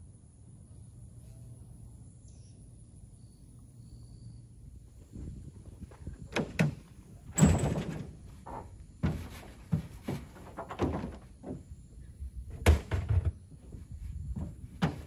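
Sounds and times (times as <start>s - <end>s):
knocks and thuds on metal truck bed: 5.8s - 15.0s
tailgate dropping open clunk: 6.0s - 13.8s, 14.4s - 15.0s.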